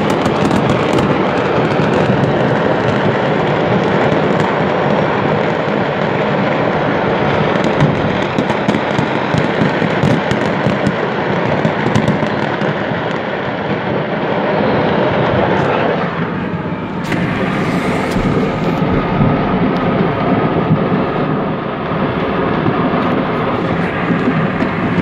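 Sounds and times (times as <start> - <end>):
fireworks cracks and bangs: 0.0 - 25.0
car driving past: 16.2 - 22.4.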